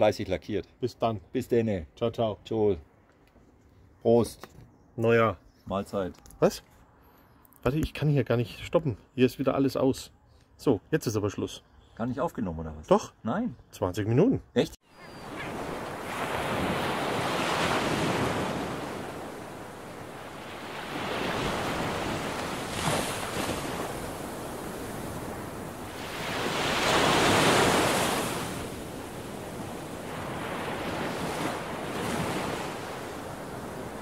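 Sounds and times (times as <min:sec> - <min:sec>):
waves washing in: 0:15.2 - 0:34.0.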